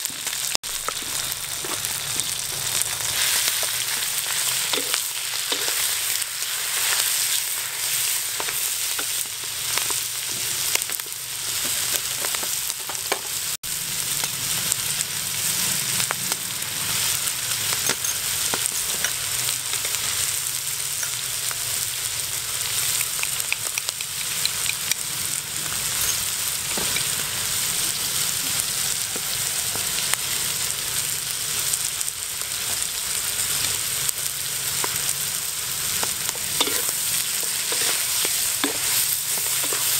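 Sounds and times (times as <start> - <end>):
mussels sizzling in a wok: 0.0 - 39.9
wooden spatula scraping wok: 36.0 - 39.9.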